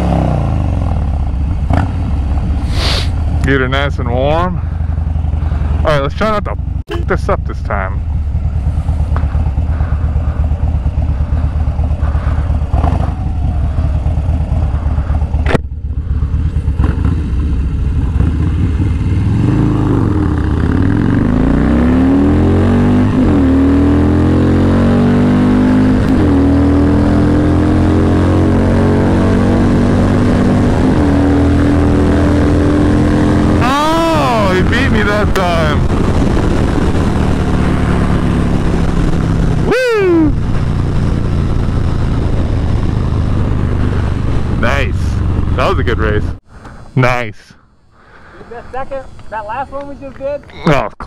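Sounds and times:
motorcycle engine revving: 0.0 - 46.8
wind rushing over microphone: 34.4 - 47.0.

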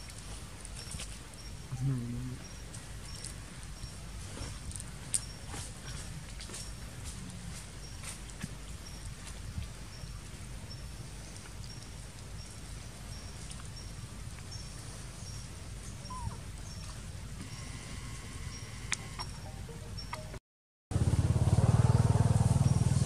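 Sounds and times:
high chirp: 16.0 - 16.4, 17.5 - 20.4.

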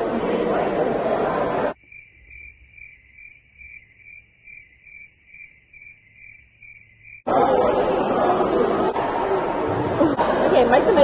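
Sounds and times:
cafeteria noise: 0.0 - 1.8, 7.2 - 11.0
crickets chirping: 1.8 - 7.3.

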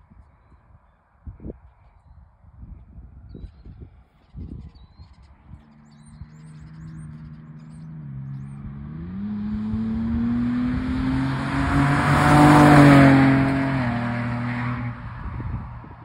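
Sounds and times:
car engine accelerating: 5.5 - 16.0.

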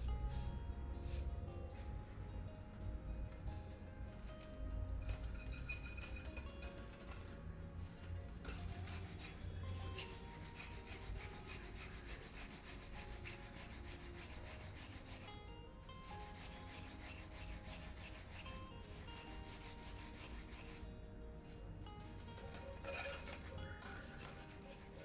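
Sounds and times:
scouring pad scrubbing pan: 8.6 - 15.3, 16.2 - 20.8.

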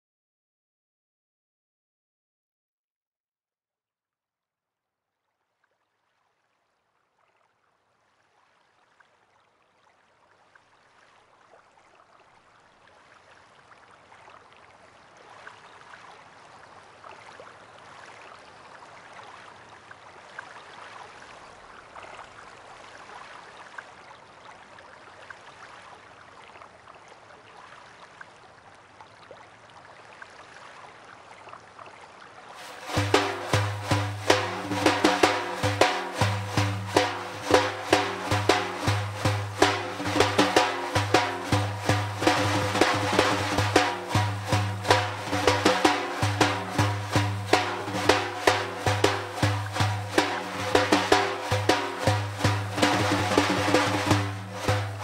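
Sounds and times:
frame drum strokes: 32.6 - 55.0
rain falling: 32.6 - 55.0.

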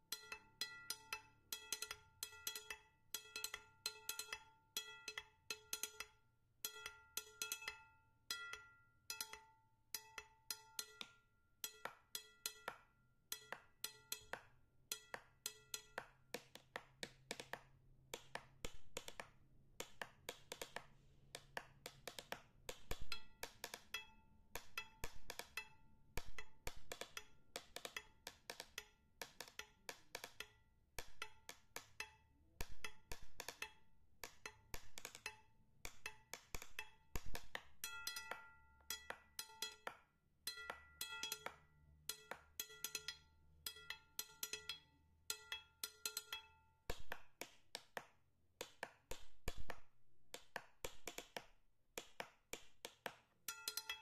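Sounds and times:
wood-block clicks music: 0.0 - 54.0.

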